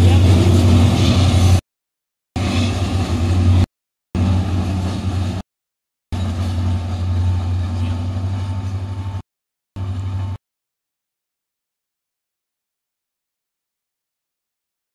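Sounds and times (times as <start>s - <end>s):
train engine drone: 0.0s - 1.6s, 2.4s - 5.4s, 6.2s - 9.2s, 9.8s - 10.4s.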